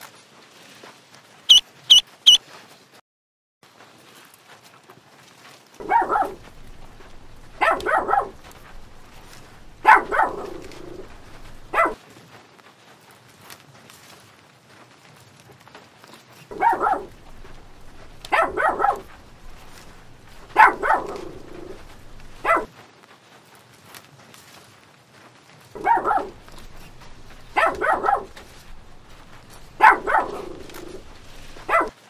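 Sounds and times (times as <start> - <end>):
dog barking: 5.8 - 12.0, 16.5 - 22.7, 25.8 - 32.0.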